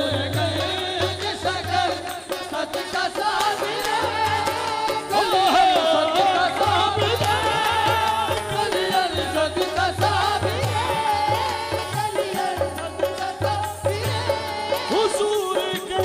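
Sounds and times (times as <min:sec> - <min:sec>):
harmonium: 0:00.0 - 0:16.0
voices singing: 0:00.0 - 0:16.0
hand drum beat: 0:03.2 - 0:16.0.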